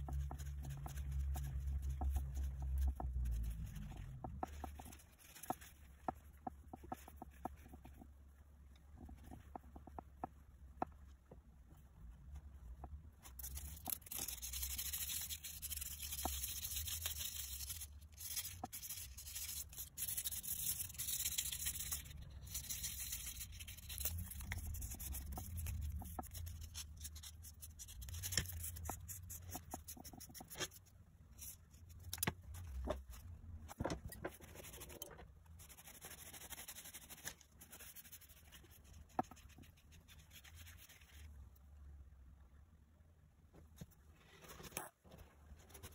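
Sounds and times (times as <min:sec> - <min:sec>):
scratchy rubbing on metal: 0:13.4 - 0:30.8.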